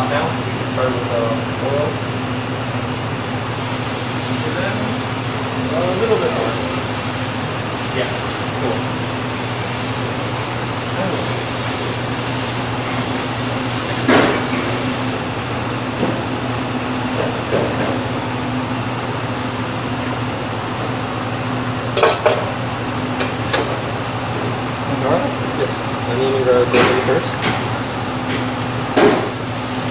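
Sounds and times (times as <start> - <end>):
kitchen equipment noise: 21.9 - 22.6
metal clanks of pots: 22.0 - 22.5.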